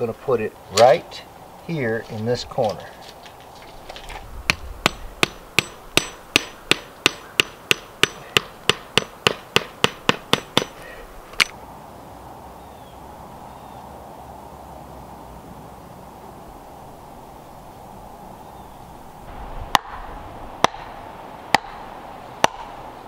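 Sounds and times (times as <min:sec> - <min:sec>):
hammer blows on wooden stake: 0:04.5 - 0:11.0.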